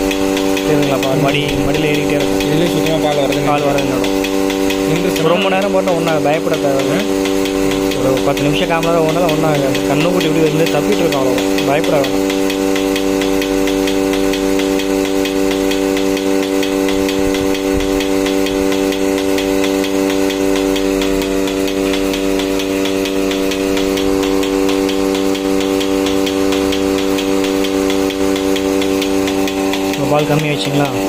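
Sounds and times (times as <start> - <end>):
fast even ticking: 0.0 - 31.0
milking machine pump humming: 0.0 - 31.0.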